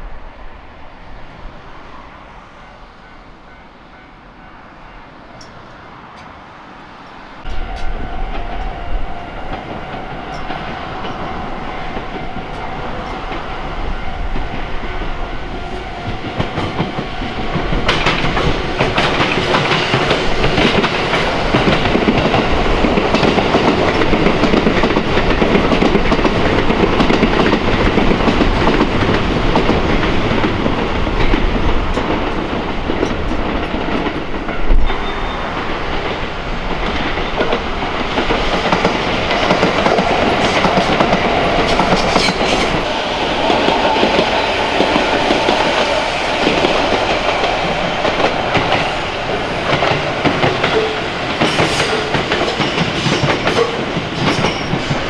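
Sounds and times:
electric train rumbling past: 0:00.0 - 0:55.0
wheels clacking over rail joints: 0:14.3 - 0:55.0.

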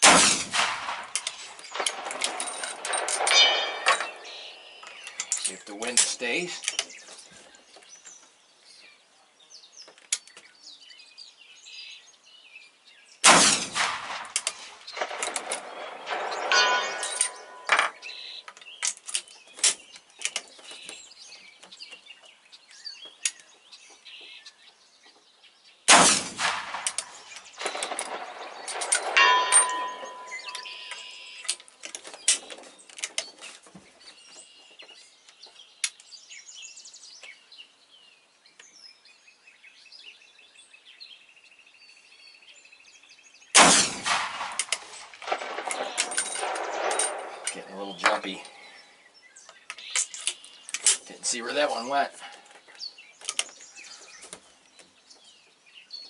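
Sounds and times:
rifle shot: 0:00.0 - 0:04.7, 0:13.2 - 0:18.2, 0:25.9 - 0:31.1, 0:43.6 - 0:47.6
ringing metallic ding: 0:29.2 - 0:31.2
metallic clicks of rifle reloading: 0:44.1 - 0:47.6.

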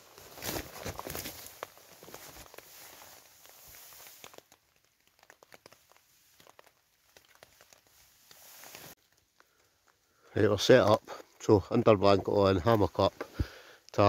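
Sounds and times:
fabric rustling and crinkling: 0:00.0 - 0:10.0.

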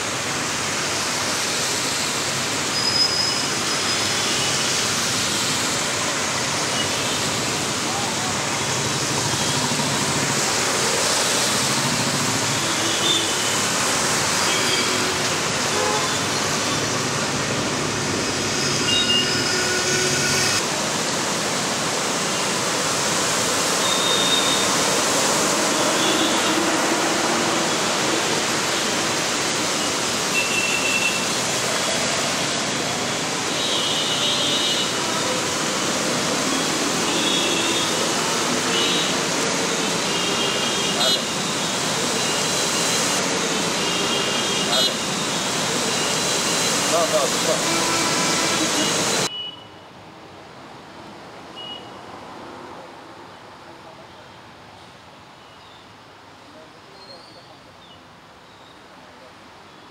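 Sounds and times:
tyres spraying water: 0:00.0 - 0:19.1, 0:20.6 - 0:49.3
short car horn beeps: 0:47.7 - 0:49.8, 0:51.6 - 0:52.0.

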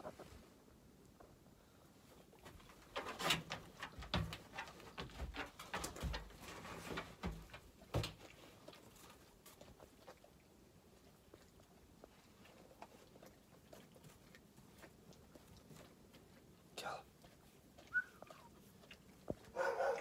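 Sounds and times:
wolf paws on wooden platform: 0:02.4 - 0:09.6.

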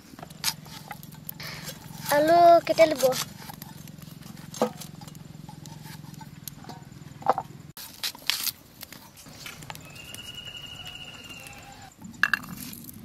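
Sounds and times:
potato being peeled and cut: 0:00.4 - 0:03.7, 0:07.8 - 0:10.3
long high whistle-like call: 0:09.8 - 0:11.9.

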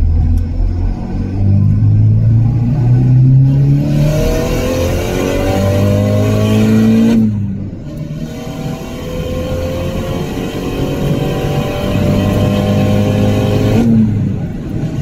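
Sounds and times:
car engine accelerating: 0:00.0 - 0:15.0.

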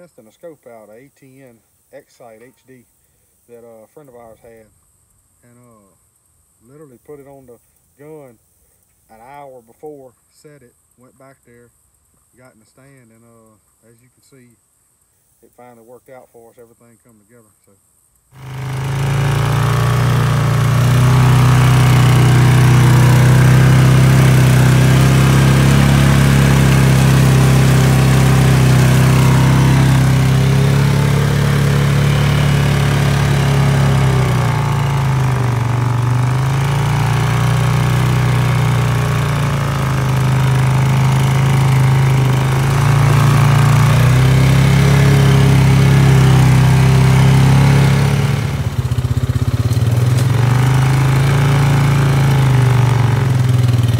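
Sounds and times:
all-terrain vehicle engine running: 0:18.4 - 0:53.9.

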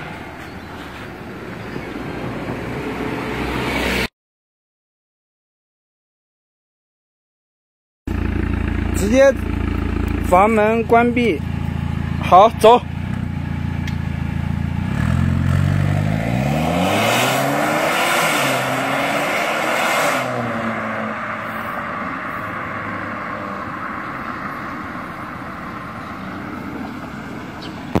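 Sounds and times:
car accelerating hard: 0:14.8 - 0:28.0.

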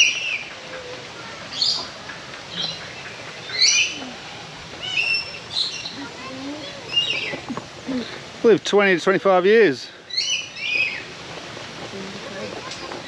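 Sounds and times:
bird chirps: 0:04.8 - 0:07.4, 0:10.1 - 0:11.1.

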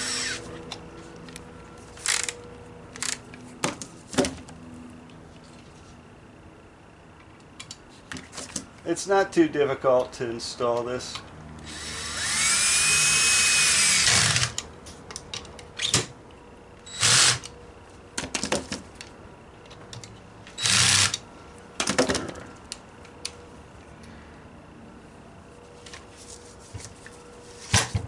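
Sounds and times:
cordless drill driving screws: 0:00.0 - 0:00.4, 0:11.6 - 0:14.6, 0:16.9 - 0:17.5, 0:20.6 - 0:21.2
clicks and clatter of parts: 0:00.6 - 0:04.5, 0:14.4 - 0:16.1, 0:18.2 - 0:21.2.

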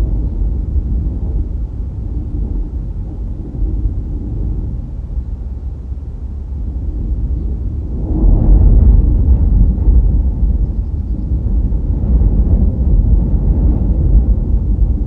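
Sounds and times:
road and wind noise: 0:00.0 - 0:15.0.

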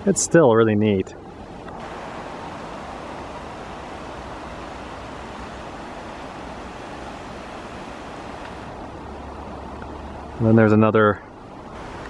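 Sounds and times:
hot spring fizzing and bubbling: 0:01.8 - 0:08.8.

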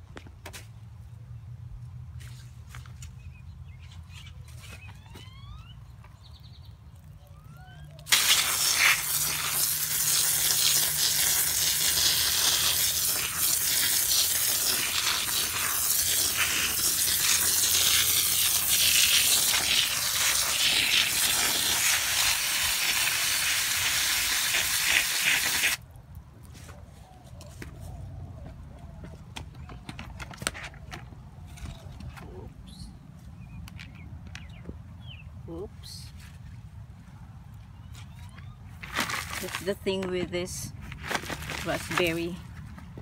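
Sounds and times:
hose spraying water on soil: 0:08.0 - 0:25.8.

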